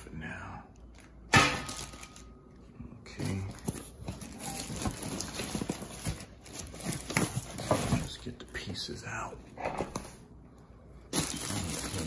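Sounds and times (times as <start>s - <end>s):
plastic wrap crinkling: 0.9s - 8.3s, 11.1s - 12.0s
cardboard rustling: 3.2s - 8.3s.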